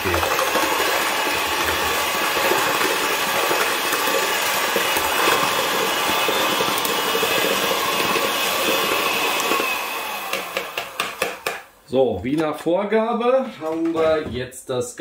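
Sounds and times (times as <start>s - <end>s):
electric hand mixer running: 0.0s - 11.7s.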